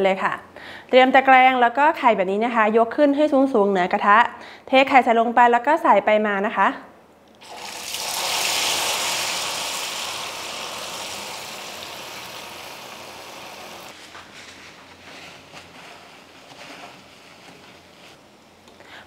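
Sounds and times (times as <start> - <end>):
oil crackling: 7.4 - 13.9
egg sizzling in hot oil: 7.4 - 14.0.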